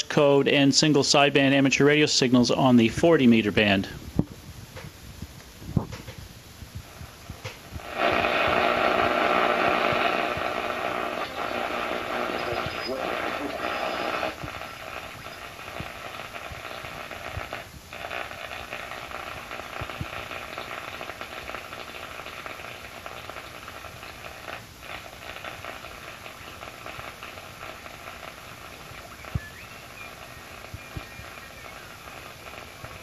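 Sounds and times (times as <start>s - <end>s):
radio static hiss: 0.0s - 33.0s.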